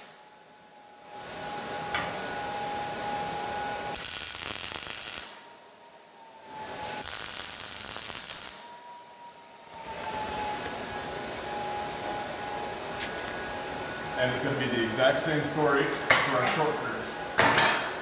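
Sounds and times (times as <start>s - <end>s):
welder crackling sizzle: 3.9s - 5.5s, 6.8s - 8.7s.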